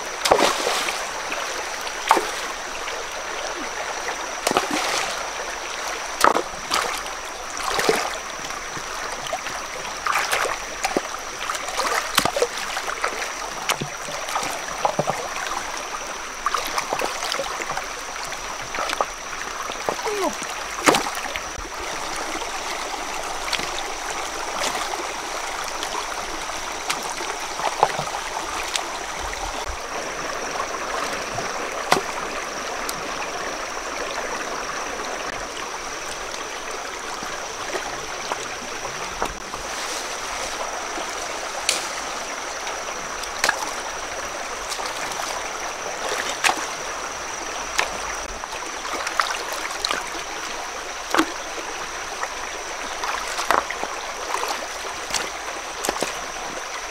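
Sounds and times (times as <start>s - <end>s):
stream running over rocks: 0.0s - 56.9s
stones knocking and splashing: 0.2s - 1.0s, 4.4s - 5.1s, 6.2s - 7.0s, 10.1s - 12.7s, 19.8s - 21.2s, 31.1s - 32.3s, 53.1s - 53.7s, 54.3s - 56.2s.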